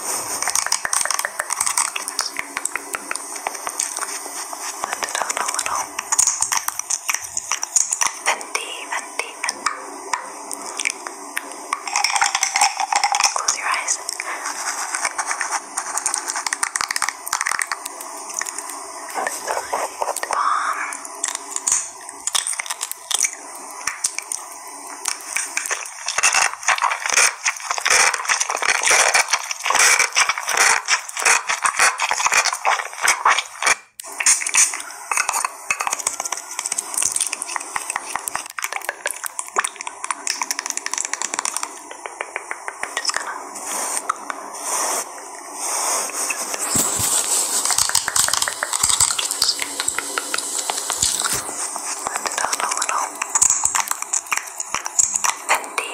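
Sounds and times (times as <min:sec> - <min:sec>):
crisp clicks and taps: 0:00.4 - 0:04.1, 0:15.0 - 0:18.8, 0:35.8 - 0:43.4, 0:46.5 - 0:55.9.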